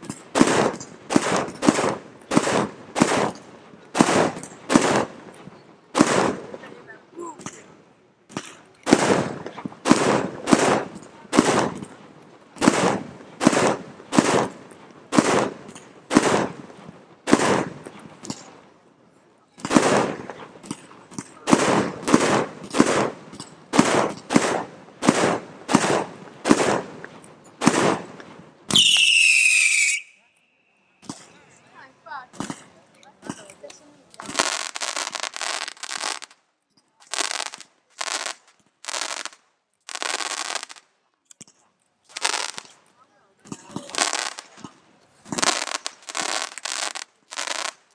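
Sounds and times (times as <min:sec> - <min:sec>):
fireworks bangs: 0:00.0 - 0:18.8, 0:19.5 - 0:30.3, 0:31.0 - 0:36.4, 0:42.1 - 0:42.8, 0:43.4 - 0:47.9
firework whistle: 0:28.7 - 0:30.8.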